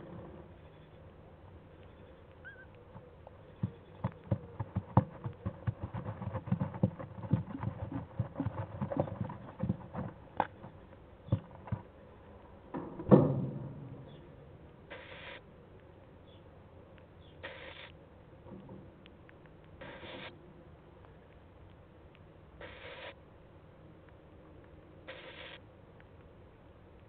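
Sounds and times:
rustle: 0.0 - 27.0
owl chick scratching on wood shavings: 14.9 - 15.4, 17.4 - 17.9, 19.8 - 20.3, 22.6 - 23.2, 25.1 - 25.6.

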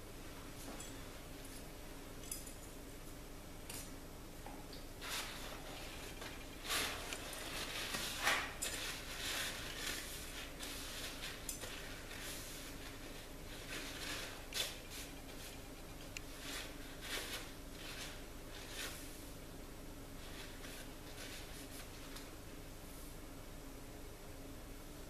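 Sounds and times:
paper towel crinkling on knife blade: 5.0 - 15.6.

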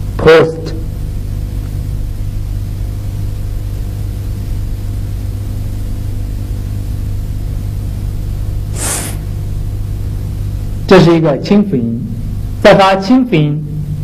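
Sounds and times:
low electrical hum: 0.0 - 14.0
faint hiss: 8.7 - 9.2.

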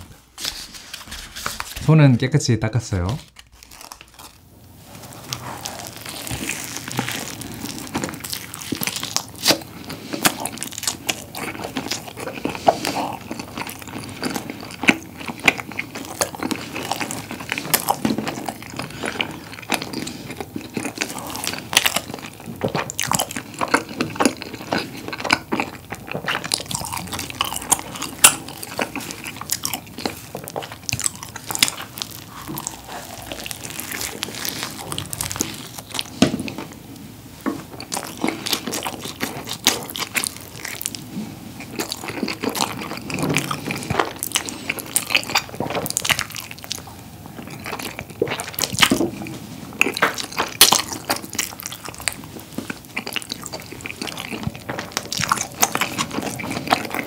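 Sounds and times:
man biting and chewing: 3.3 - 37.0, 37.6 - 57.0.

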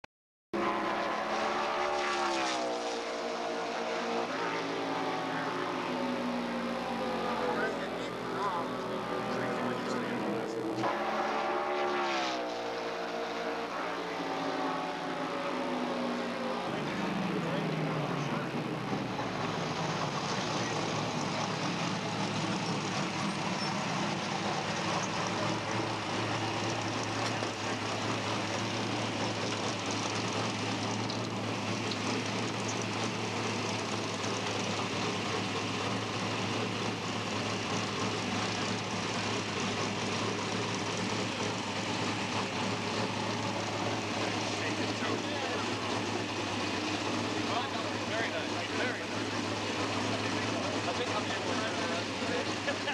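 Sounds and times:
truck engine idling: 15.3 - 52.9.

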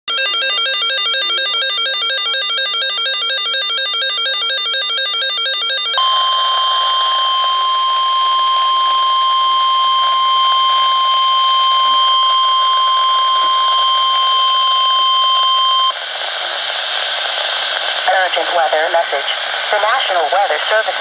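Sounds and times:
electronic warbling alarm: 0.1 - 16.0
steady alarm tone: 0.1 - 16.1.

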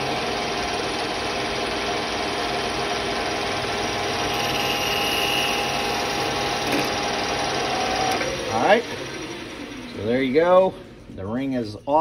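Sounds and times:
lathe running: 0.0 - 12.0
faint high whine: 4.2 - 6.2.

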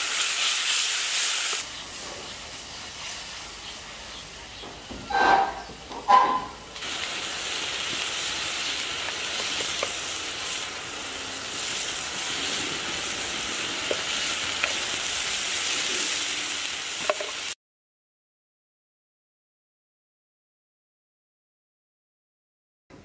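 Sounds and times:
onions sizzling in hot oil: 0.0 - 17.6.

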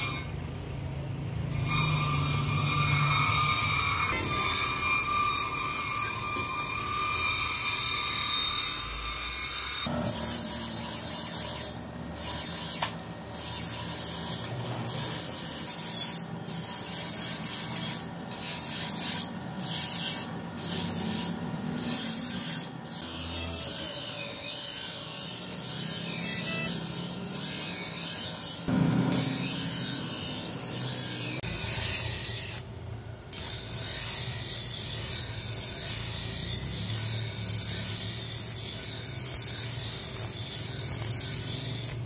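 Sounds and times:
knife grinding on grinding wheel: 1.5 - 32.7, 33.3 - 42.0.

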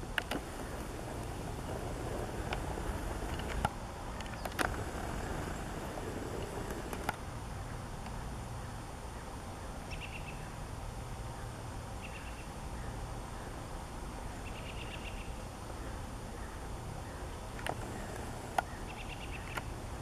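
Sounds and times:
low background rumble: 0.0 - 7.9
bird chirping: 9.9 - 10.6, 12.0 - 13.5, 14.4 - 19.8.

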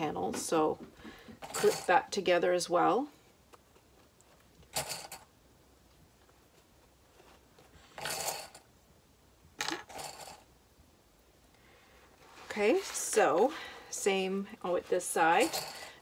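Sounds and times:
fabric rustling: 12.0 - 16.0.

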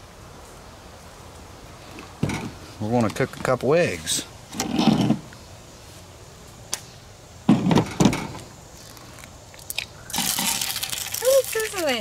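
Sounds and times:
egg sizzling in hot oil: 10.1 - 12.0.

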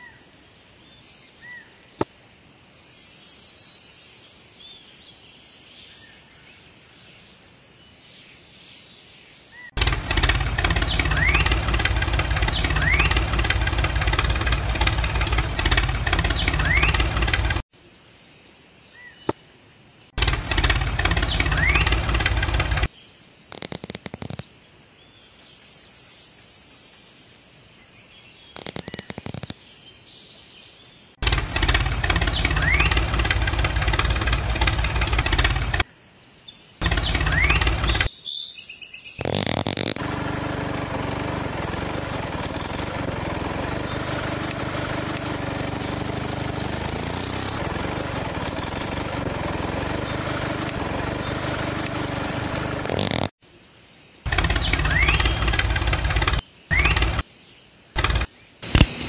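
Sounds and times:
birds chirping: 9.5 - 17.6, 20.2 - 24.4, 28.1 - 30.5, 31.2 - 35.8, 36.5 - 53.3, 54.1 - 59.0
small motor running: 9.8 - 17.7, 20.2 - 22.9, 23.6 - 24.4, 28.6 - 29.6, 31.2 - 35.8, 36.8 - 38.1, 39.2 - 53.4, 54.3 - 57.2, 58.0 - 59.0.

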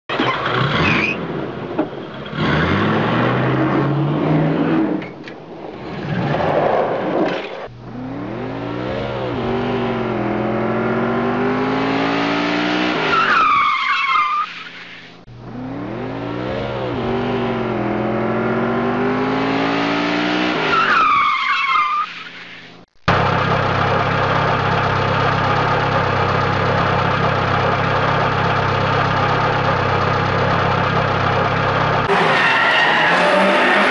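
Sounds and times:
car engine revving: 0.2 - 5.1, 7.7 - 13.2, 15.4 - 20.8, 23.1 - 33.9
steady engine sound: 7.7 - 11.8, 15.2 - 19.4, 23.1 - 32.2
tyres squealing: 32.1 - 33.9.

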